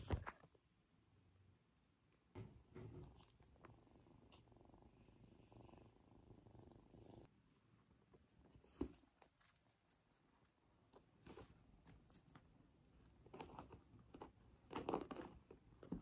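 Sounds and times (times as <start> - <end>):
kitten purring: 2.4 - 12.2.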